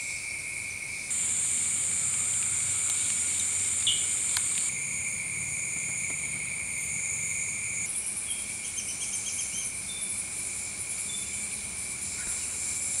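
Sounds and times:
insects shrilling: 0:01.1 - 0:10.2.

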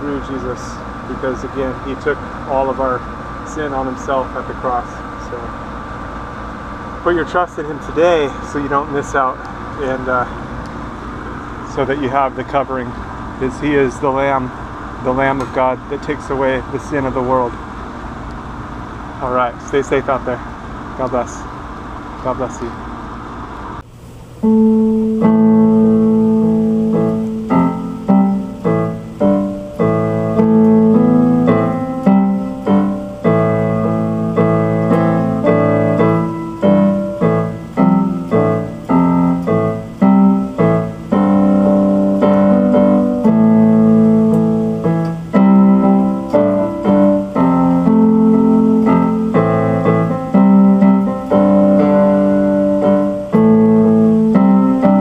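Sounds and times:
electric keyboard piano music: 0:00.0 - 0:05.5, 0:24.4 - 0:55.0.

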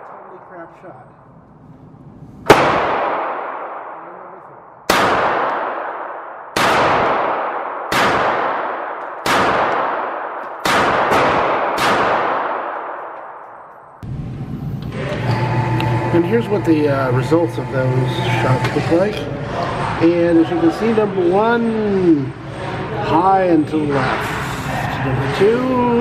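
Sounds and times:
pistol shots ringing indoors: 0:02.4 - 0:14.0
target carrier humming: 0:13.0 - 0:26.0.

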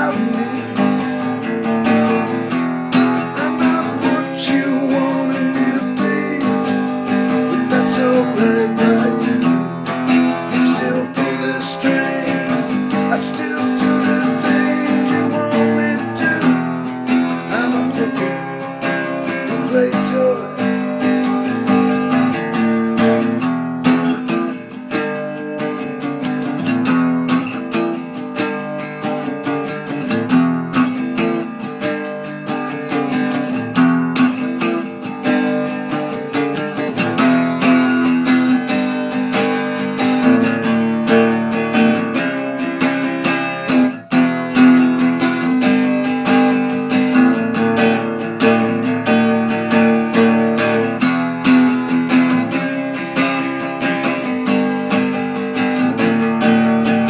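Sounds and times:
strummed acoustic guitar: 0:00.0 - 0:57.0.

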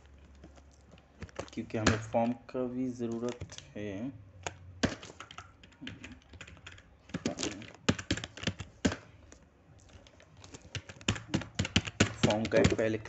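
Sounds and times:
typing on keyboard: 0:04.4 - 0:09.1, 0:09.8 - 0:13.0.

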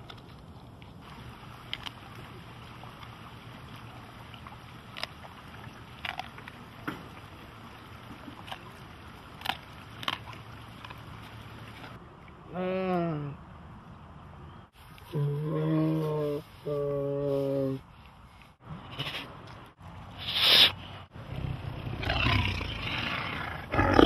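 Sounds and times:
tigers eating and licking: 0:00.0 - 0:12.4
low wind-like background noise: 0:00.0 - 0:24.0.

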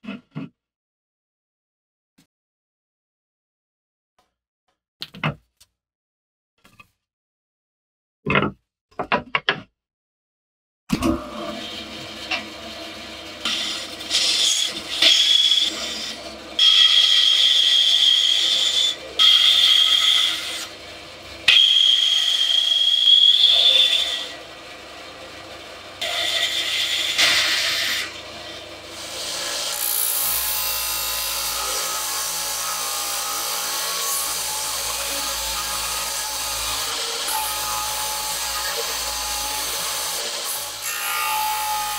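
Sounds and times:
bandsaw cutting wood: 0:11.0 - 0:41.9
belt sander running: 0:11.1 - 0:40.9.

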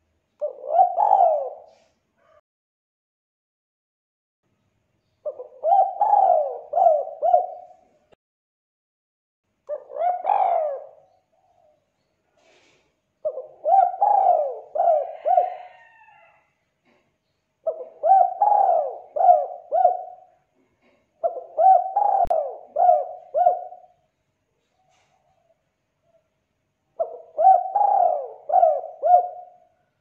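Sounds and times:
dove cooing: 0:00.4 - 0:02.4, 0:05.2 - 0:07.9, 0:09.7 - 0:11.8, 0:13.2 - 0:16.4, 0:17.6 - 0:24.0, 0:26.9 - 0:29.9.

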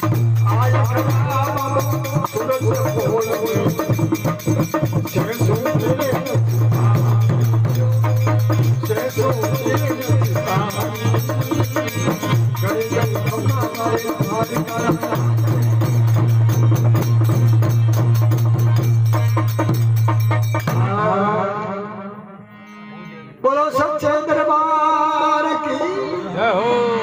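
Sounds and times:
man singing: 0:00.0 - 0:17.1, 0:20.7 - 0:22.4, 0:23.3 - 0:27.0
hand drum beating: 0:00.0 - 0:20.9.

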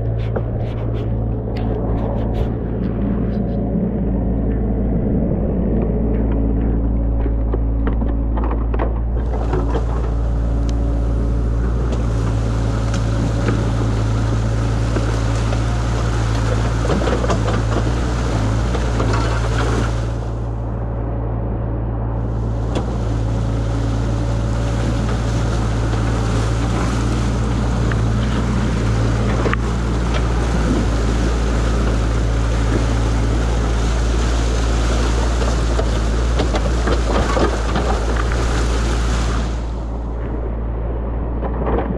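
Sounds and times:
excavator engine droning: 0:00.0 - 0:41.9
water rushing through a breach: 0:09.1 - 0:20.8, 0:22.2 - 0:41.9.

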